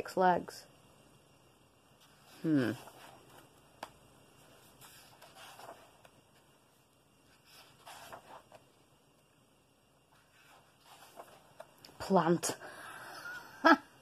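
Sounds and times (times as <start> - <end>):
paper page turning: 2.0 - 6.5, 7.3 - 8.7, 10.2 - 11.8.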